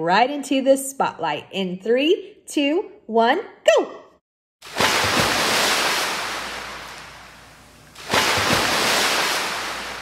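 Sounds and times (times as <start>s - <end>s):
ocean waves breaking: 4.6s - 10.0s.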